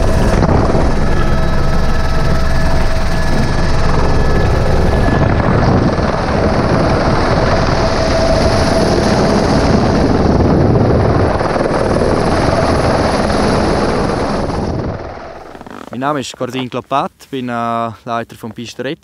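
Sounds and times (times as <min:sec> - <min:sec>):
thin high whine: 0:00.0 - 0:10.6
helicopter rotor and engine noise: 0:00.0 - 0:16.6.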